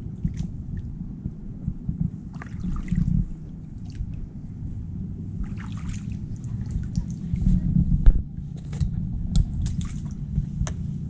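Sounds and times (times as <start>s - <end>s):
steady low rumble: 0.0s - 11.0s
paddle splashing water: 2.3s - 4.2s, 5.4s - 7.5s, 9.6s - 10.3s.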